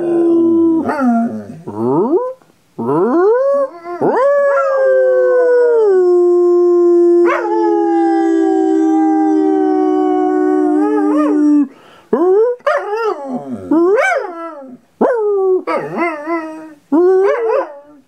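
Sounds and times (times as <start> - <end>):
dog howling: 2.8 - 11.7, 12.6 - 18.0.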